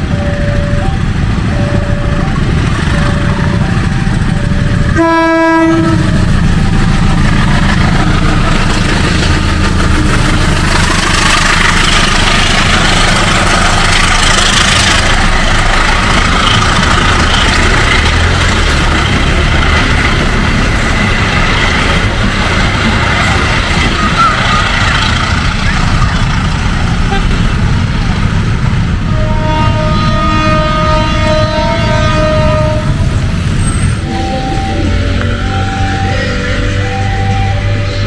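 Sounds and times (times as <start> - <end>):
locomotive horn blast: 0.0 - 7.3, 27.0 - 27.8, 29.0 - 38.0
two-tone crossing warning signal: 0.0 - 27.5, 29.1 - 38.0
locomotive engine rumbling: 0.0 - 38.0
train wheels clattering on rails: 5.8 - 35.4.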